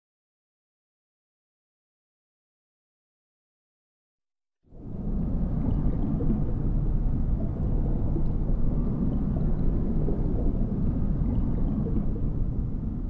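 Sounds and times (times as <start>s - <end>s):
water gurgling: 4.7s - 13.0s
aquarium pumps humming: 4.8s - 13.0s.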